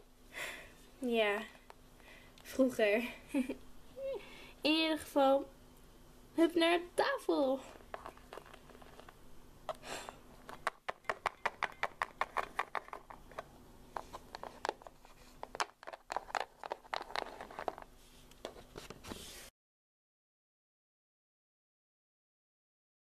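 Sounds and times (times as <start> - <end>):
faint steady hum: 0.0 - 19.5
plastic toys clicking on wood: 10.5 - 13.2.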